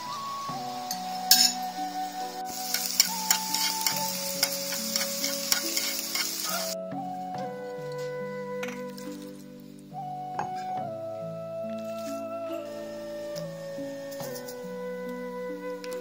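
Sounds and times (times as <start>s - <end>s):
gentle background music: 0.0s - 16.0s
chopsticks tapping a pan: 0.9s - 1.6s, 2.5s - 6.8s
egg sizzling in frying pan: 2.5s - 6.8s.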